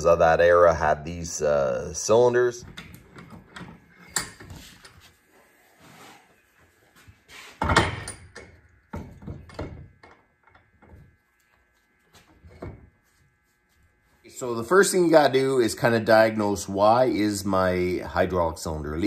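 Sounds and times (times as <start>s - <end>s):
metal knocks and clatters: 7.6s - 11.1s.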